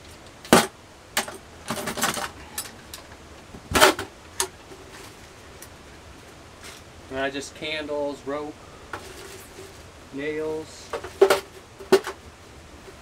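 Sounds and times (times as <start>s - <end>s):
knocks and clanks of hard objects: 0.4s - 4.6s, 10.9s - 12.2s.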